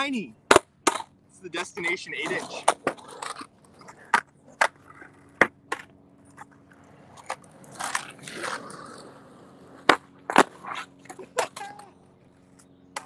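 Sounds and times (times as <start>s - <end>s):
skateboard knocking on ground: 0.5s - 1.1s, 2.6s - 6.5s
skateboard scraping: 0.5s - 13.0s.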